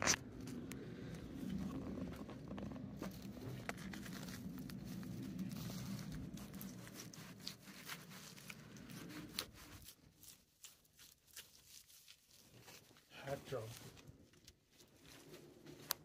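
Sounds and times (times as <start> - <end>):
carcass tearing and snapping: 0.0 - 0.5, 3.0 - 13.1
low rumble: 0.0 - 9.6.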